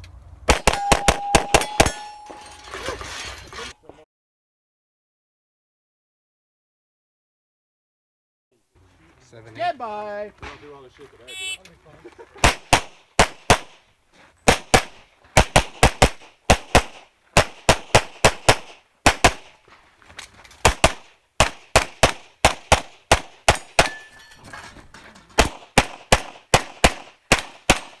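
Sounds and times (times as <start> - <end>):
pistol shots: 0.5 - 2.1, 12.4 - 13.8, 14.5 - 19.6, 20.6 - 24.0, 25.4 - 28.0.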